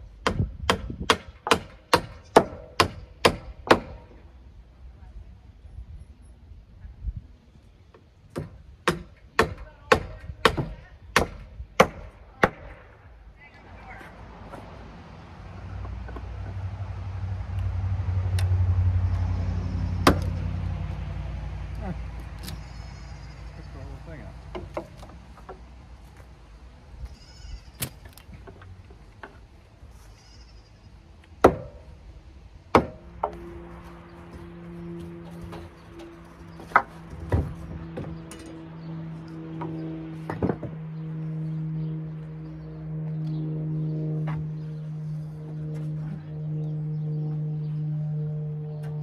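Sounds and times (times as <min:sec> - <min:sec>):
hammer striking timber: 0:00.2 - 0:04.1, 0:08.3 - 0:12.9, 0:20.0 - 0:20.4, 0:24.5 - 0:25.6, 0:31.4 - 0:31.9, 0:32.7 - 0:33.5, 0:36.6 - 0:38.5, 0:39.6 - 0:40.8.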